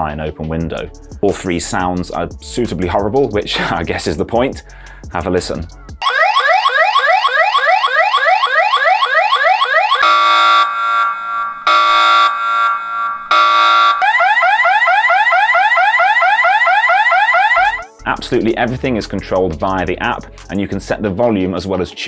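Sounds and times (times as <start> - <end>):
electronic alarm siren: 6.0 - 17.9.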